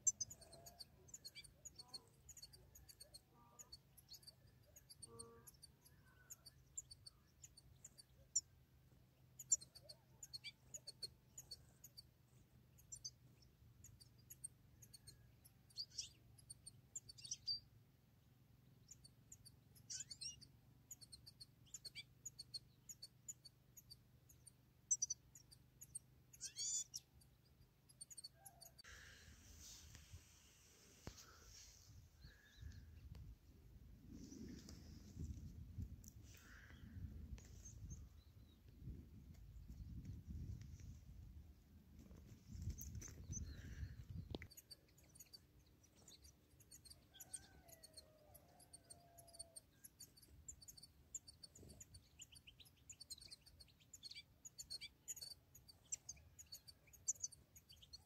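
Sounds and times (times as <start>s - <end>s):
goldfinches twittering: 24.9s - 27.1s.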